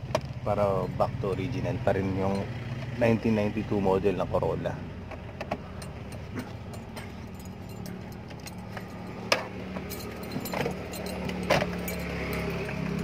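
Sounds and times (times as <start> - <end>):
keys jingling on key ring: 5.7 - 13.0.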